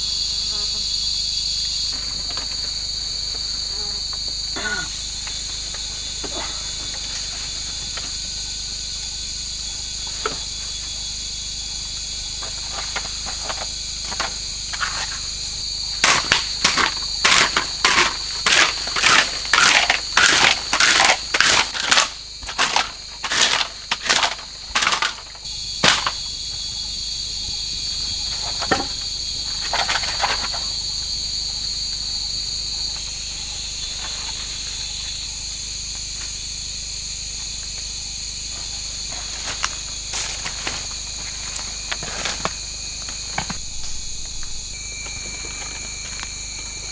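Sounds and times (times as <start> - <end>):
insects chirring: 0.0 - 46.9
pole jabbing and scraping soil: 12.4 - 26.2.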